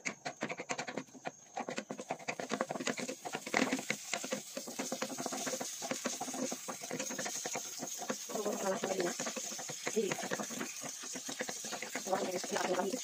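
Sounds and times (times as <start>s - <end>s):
fat crackling and sizzling in pan: 2.0s - 13.0s.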